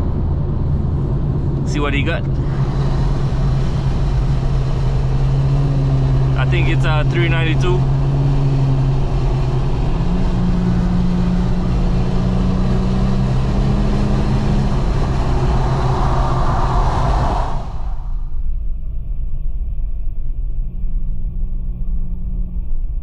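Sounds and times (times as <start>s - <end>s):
car engine drone: 0.0s - 23.0s
road and wind noise: 0.0s - 23.0s.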